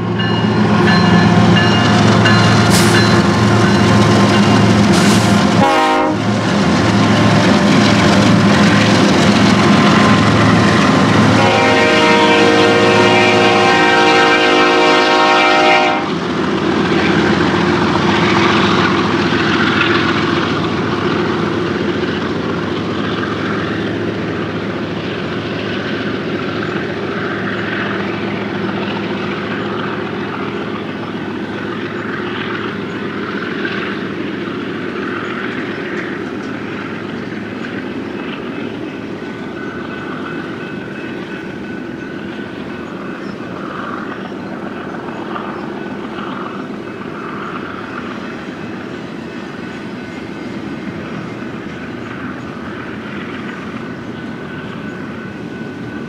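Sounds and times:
diesel locomotive engine drone: 0.0s - 56.0s
train wheels rumbling on rails: 0.0s - 56.0s
train horn blast: 5.5s - 6.4s, 9.8s - 16.2s.

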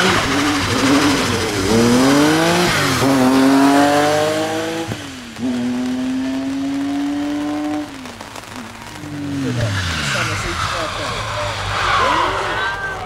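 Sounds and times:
car engine revving at full throttle: 0.0s - 13.0s.

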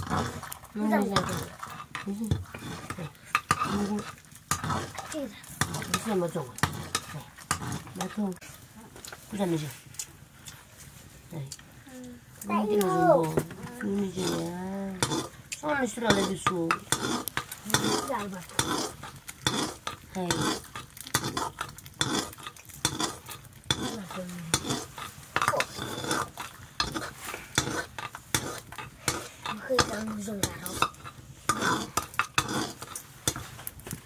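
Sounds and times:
metal utensil scraping pot: 0.0s - 9.6s, 13.2s - 34.0s
food sizzling: 0.0s - 34.0s.

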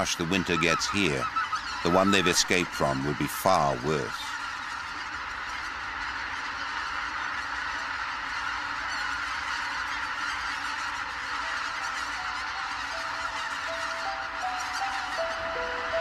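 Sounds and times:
geese honking: 0.0s - 16.0s
soft music with held notes: 11.5s - 16.0s.

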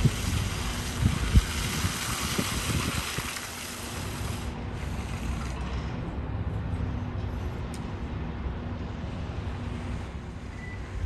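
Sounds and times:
hiss: 0.0s - 5.6s.

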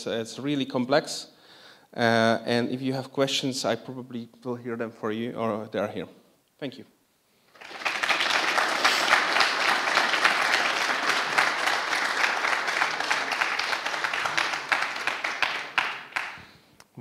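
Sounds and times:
audience applauding: 7.5s - 16.5s.

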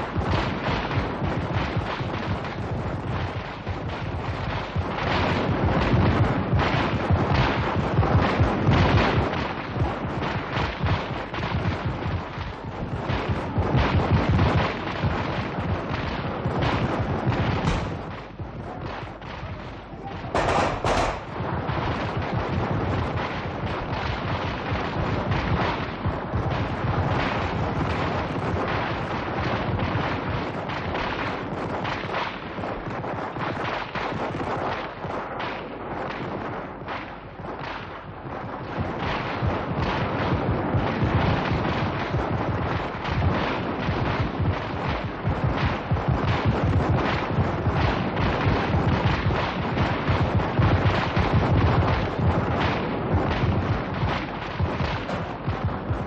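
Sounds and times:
continuous gunfire: 0.0s - 56.0s.

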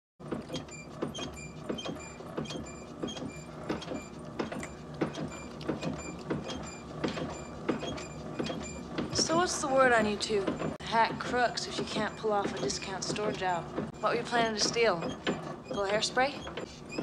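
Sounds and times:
mechanism squeaking and knocking: 0.2s - 17.0s.

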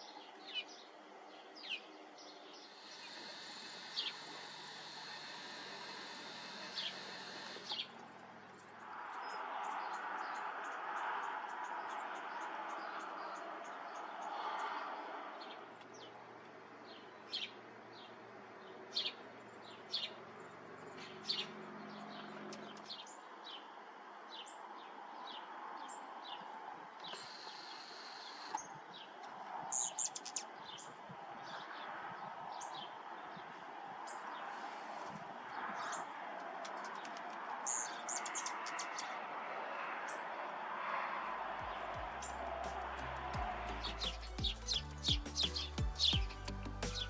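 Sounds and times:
hummingbird chip calls: 2.6s - 8.0s, 42.1s - 47.0s.

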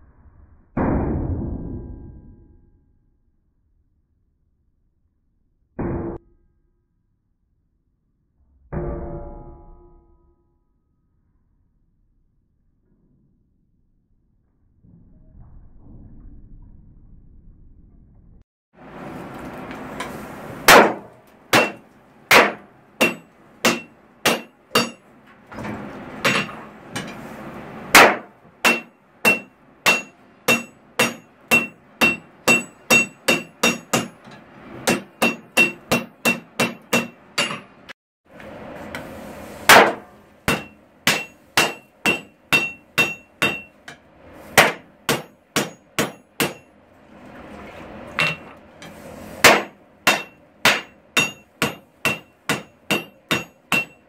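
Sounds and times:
hammer striking steel on anvil: 20.0s - 25.1s, 26.2s - 27.3s, 27.9s - 38.0s, 39.7s - 46.8s, 48.2s - 48.5s, 49.4s - 54.0s
anvil ringing: 20.7s - 25.0s, 28.0s - 34.2s, 34.8s - 37.8s, 39.7s - 43.8s, 44.6s - 46.7s, 49.5s - 54.0s.

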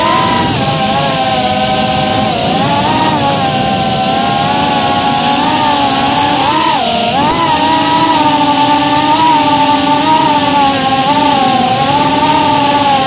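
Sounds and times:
drone propellers whining: 0.0s - 13.0s.

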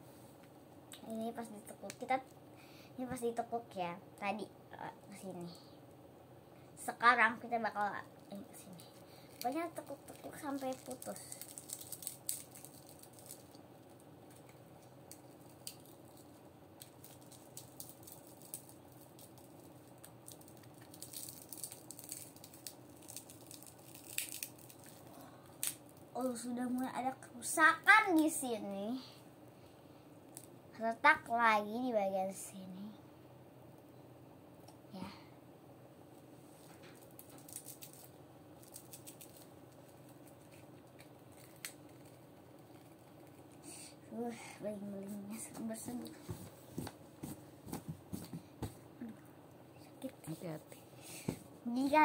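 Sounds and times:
glass screen protector crackling: 8.2s - 26.1s, 36.7s - 43.6s.

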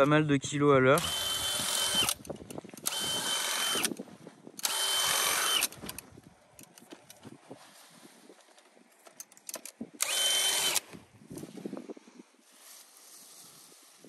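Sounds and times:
cordless drill motor whine: 1.0s - 4.0s, 4.6s - 6.0s, 10.0s - 10.9s.

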